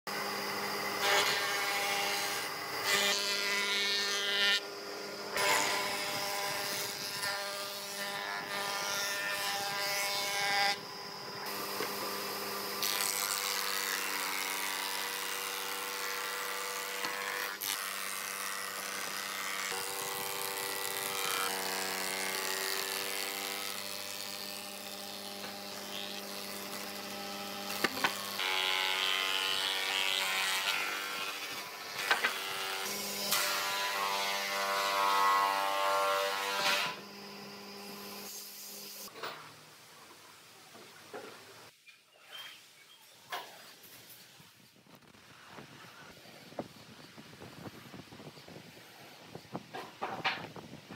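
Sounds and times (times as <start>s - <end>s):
planer machine whine: 0.1s - 38.3s.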